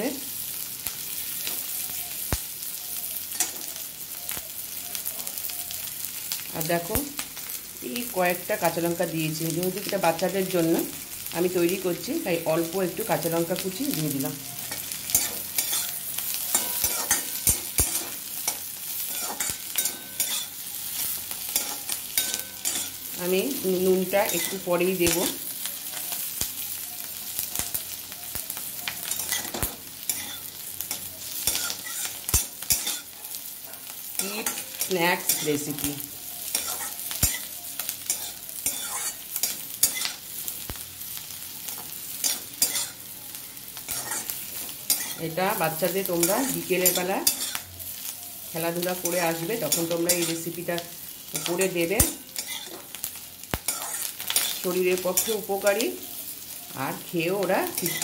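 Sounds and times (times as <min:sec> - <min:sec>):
vegetables sizzling in a wok: 0:00.0 - 0:58.0
spatula scraping: 0:14.6 - 0:23.1, 0:29.0 - 0:33.1, 0:34.2 - 0:40.2, 0:42.2 - 0:43.0, 0:43.9 - 0:45.4, 0:52.3 - 0:52.9, 0:53.7 - 0:55.7.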